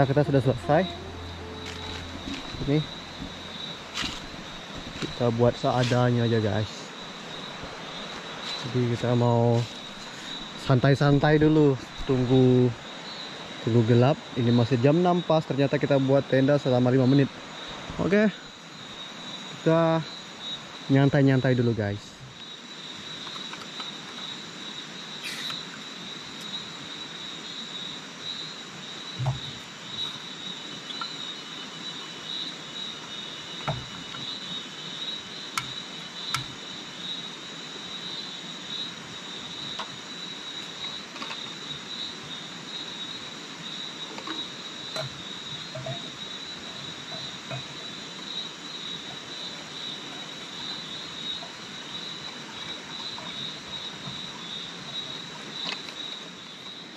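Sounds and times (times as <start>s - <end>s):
forest insects droning: 0.0s - 56.9s
camp stove and pot clicks: 23.2s - 24.3s, 35.5s - 36.6s, 40.6s - 41.6s.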